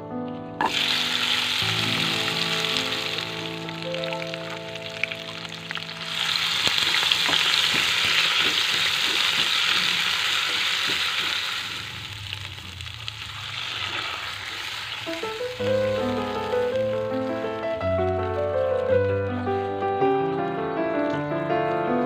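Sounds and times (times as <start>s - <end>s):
spice paste sizzling in hot oil: 0.6s - 17.7s
spatula stirring and scraping wok: 6.1s - 12.6s.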